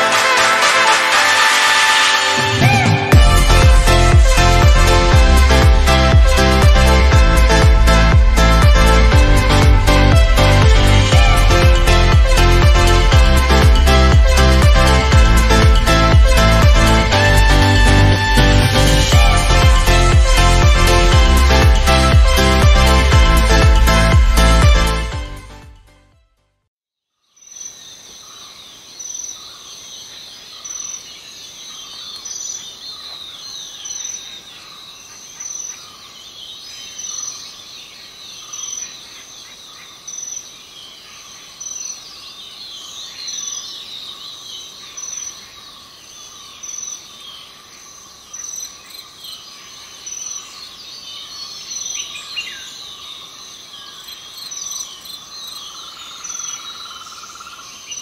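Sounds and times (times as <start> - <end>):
steady insect hum: 27.3 - 58.0.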